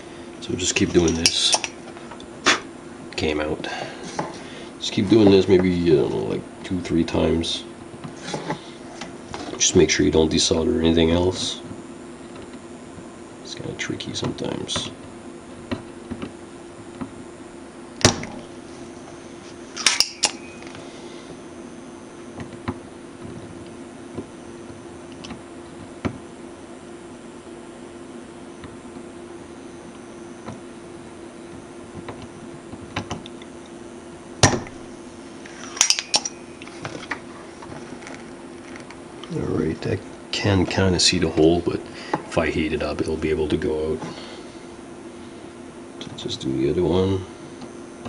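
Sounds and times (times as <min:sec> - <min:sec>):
desoldering pump snap: 0:01.0 - 0:01.8, 0:18.0 - 0:18.4, 0:19.8 - 0:20.6, 0:35.6 - 0:37.2
solder pump snapping: 0:19.8 - 0:20.4.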